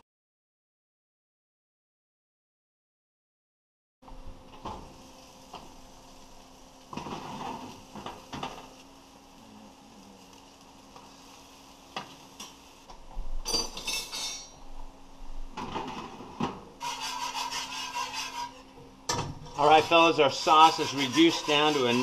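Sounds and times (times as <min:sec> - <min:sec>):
whisk scraping a skillet: 0:16.8 - 0:18.8, 0:19.5 - 0:22.0.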